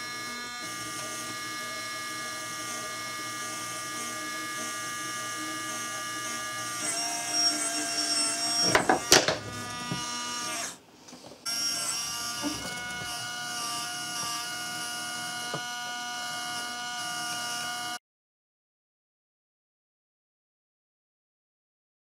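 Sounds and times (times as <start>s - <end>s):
small electric motor whirring: 0.0s - 10.8s, 11.4s - 18.0s.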